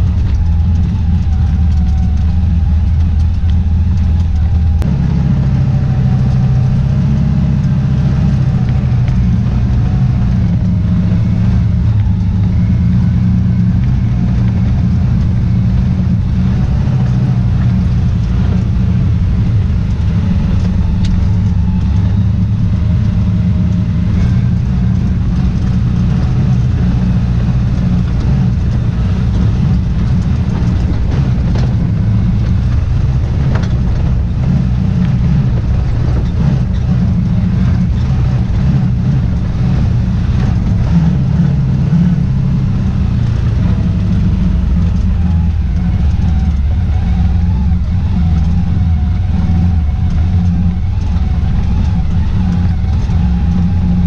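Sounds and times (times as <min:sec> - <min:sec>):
utility vehicle engine running: 0:00.0 - 0:54.0.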